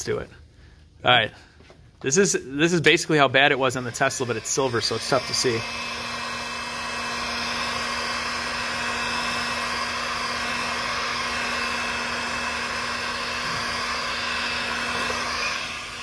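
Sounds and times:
heat gun blowing hot air: 0:03.7 - 0:16.0.

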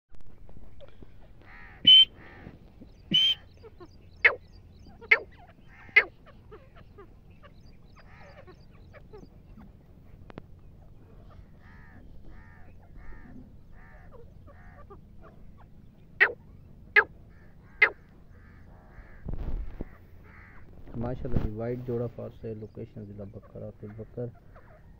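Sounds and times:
birds calling sharply: 0:00.7 - 0:24.9
faint bird chirps: 0:00.8 - 0:09.8.

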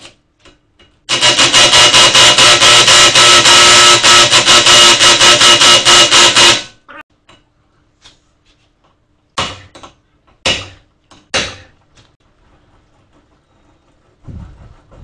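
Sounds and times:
pulsing mechanical rattle: 0:01.1 - 0:02.9.

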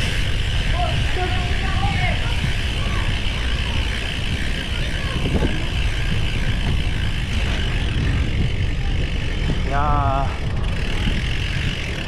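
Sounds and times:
bicycle road noise: 0:00.0 - 0:12.0
wind rumble: 0:00.0 - 0:12.0.

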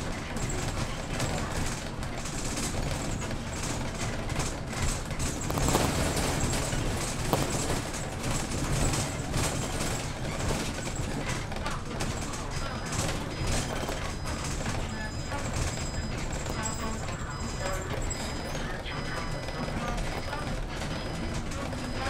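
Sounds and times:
bus engine and road rumble: 0:00.0 - 0:22.0
clicks and rattles: 0:00.3 - 0:18.3.

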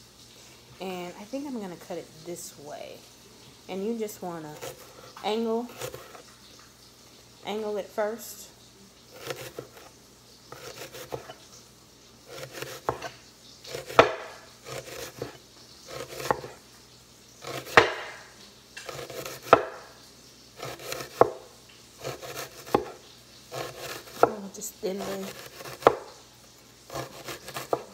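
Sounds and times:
knife crunching through onion: 0:09.2 - 0:11.4, 0:12.3 - 0:16.5, 0:17.4 - 0:18.2, 0:18.8 - 0:19.8, 0:20.6 - 0:21.4, 0:22.0 - 0:24.4, 0:25.0 - 0:26.1, 0:26.9 - 0:27.9.

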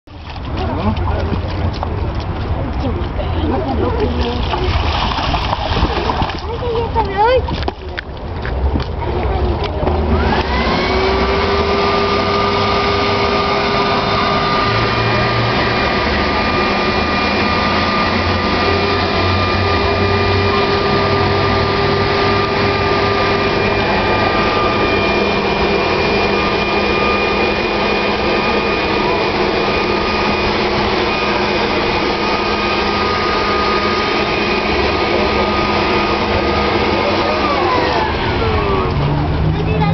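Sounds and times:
electric blower motor whining: 0:09.9 - 0:39.9
rushing air: 0:10.1 - 0:39.6.

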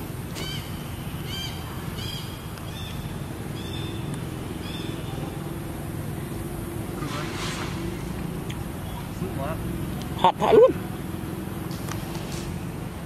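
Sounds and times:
high chirping calls: 0:00.4 - 0:05.2.

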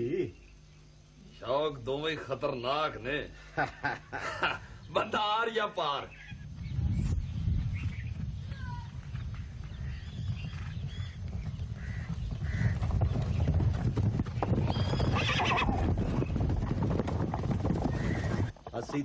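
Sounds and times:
horses galloping hoofbeats: 0:07.8 - 0:19.0
horse whinnying: 0:14.6 - 0:16.2.

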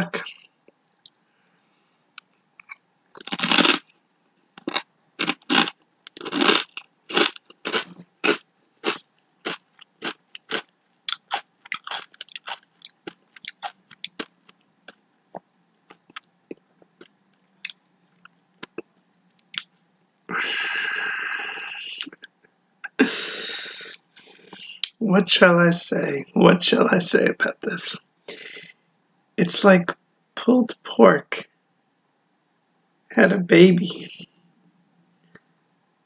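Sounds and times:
potato chip crunching: 0:02.6 - 0:03.9, 0:04.6 - 0:15.0.

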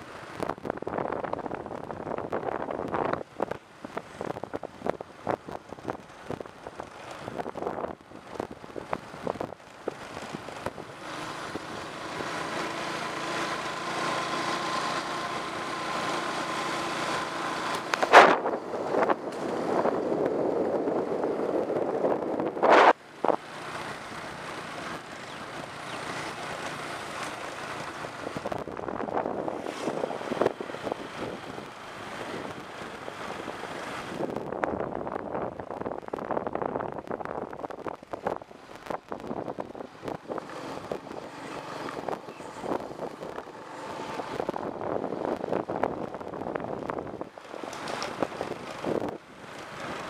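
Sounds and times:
wind on microphone: 0:00.4 - 0:10.9, 0:17.9 - 0:23.4, 0:27.7 - 0:50.0
motor scooter engine: 0:09.0 - 0:34.6, 0:37.8 - 0:50.0.

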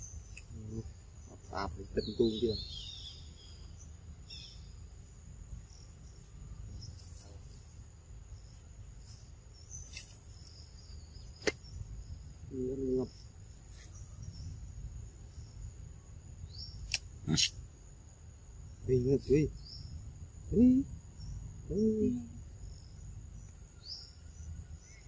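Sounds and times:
high insect drone: 0:00.0 - 0:25.0
sharp click: 0:16.8 - 0:17.6.

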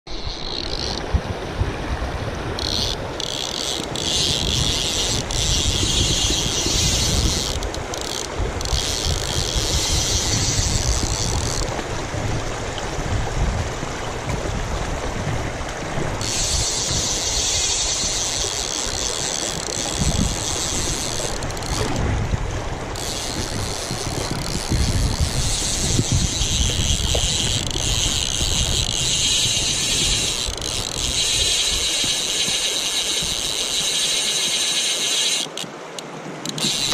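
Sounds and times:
fly reel ratchet buzzing: 0:00.1 - 0:01.1, 0:02.5 - 0:11.8, 0:16.2 - 0:22.0, 0:22.9 - 0:36.9
river water rushing: 0:30.3 - 0:36.9.

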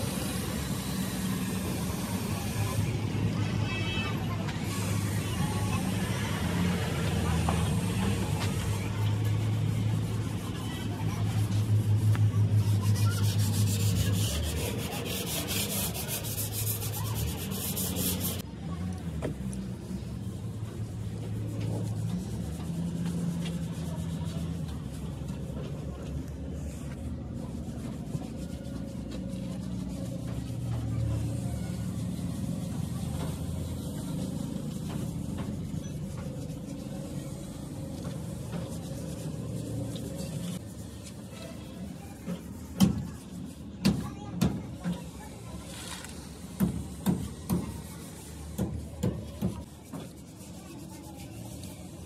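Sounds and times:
rasping rubbing hand work: 0:07.4 - 0:18.4, 0:26.8 - 0:52.0.

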